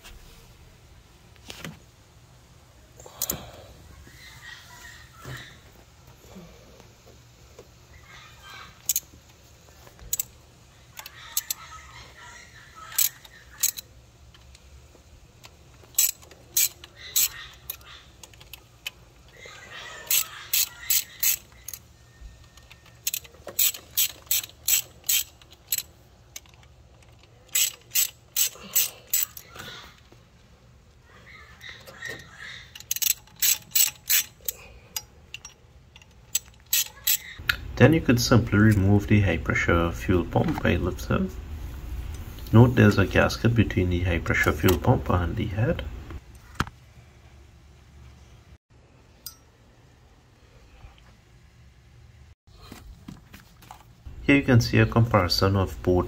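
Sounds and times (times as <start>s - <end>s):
ratchet wrench clicking: 8.8s - 9.1s, 10.0s - 10.4s, 11.0s - 11.6s, 12.9s - 14.6s, 15.4s - 19.0s, 20.1s - 29.6s, 32.7s - 37.4s.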